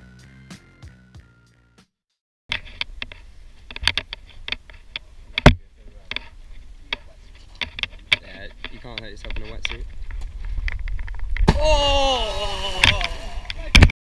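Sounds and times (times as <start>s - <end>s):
sharp clicks and knocks: 2.5s - 11.5s
loud thump: 11.4s - 11.9s.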